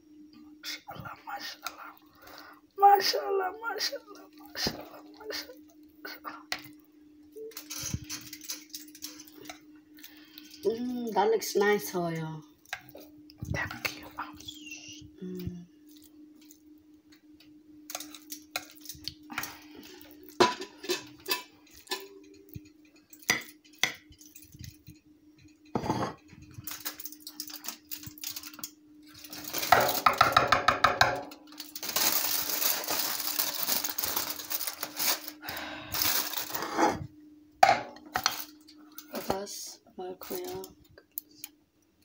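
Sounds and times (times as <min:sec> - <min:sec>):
steady low hum: 0:00.0 - 0:42.0
aluminium foil crinkling: 0:07.4 - 0:13.1, 0:17.8 - 0:24.9, 0:26.4 - 0:30.4, 0:31.2 - 0:36.7, 0:38.1 - 0:39.3, 0:40.2 - 0:41.5.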